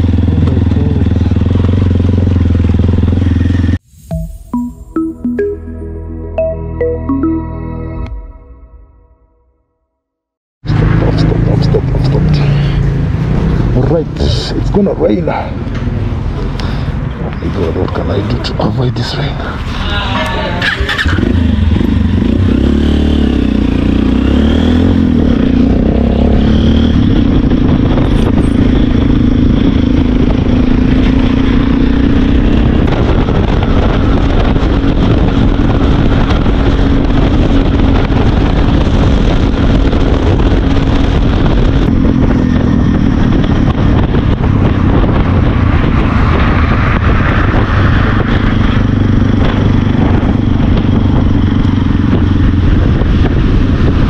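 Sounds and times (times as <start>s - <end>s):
motorcycle engine running: 0.0s - 3.8s, 20.4s - 54.0s
wind and road noise: 0.0s - 4.0s, 10.6s - 54.0s.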